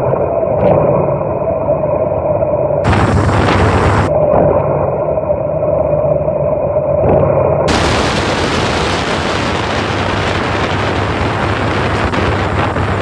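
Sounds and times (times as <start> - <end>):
wind rushing on microphone: 2.8 - 4.4, 7.7 - 13.0.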